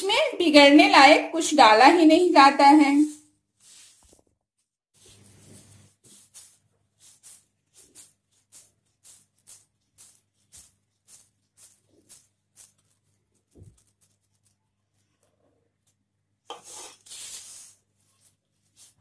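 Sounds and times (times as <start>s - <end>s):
gritty rustles of dough rolled by hand: 3.6s - 19.0s.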